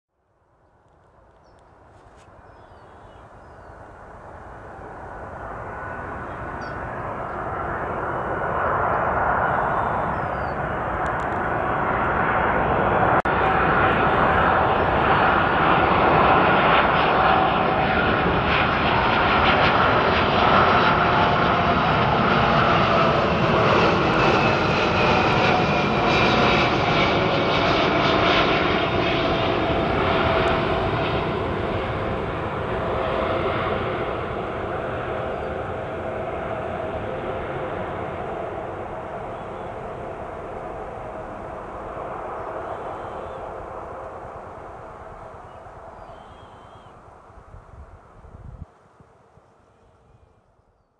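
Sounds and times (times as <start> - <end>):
airliner engines passing over: 0.4 - 50.9.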